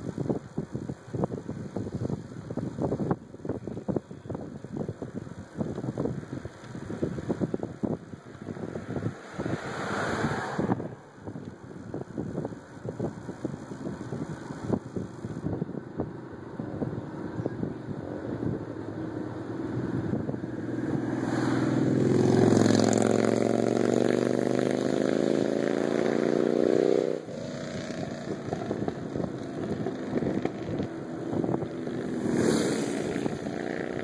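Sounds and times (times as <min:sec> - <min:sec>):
bicycle rattling: 0:00.0 - 0:09.6, 0:11.0 - 0:21.0, 0:28.1 - 0:34.0
wind rush: 0:00.0 - 0:34.0
car accelerating away: 0:20.5 - 0:28.9.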